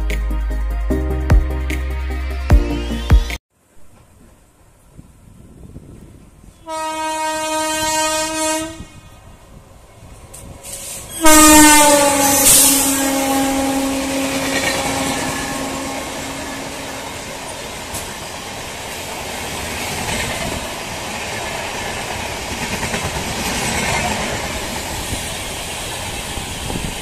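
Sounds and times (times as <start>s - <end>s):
passing train coaches rumbling: 3.9s - 27.0s
locomotive horn: 6.6s - 9.0s, 11.1s - 17.3s.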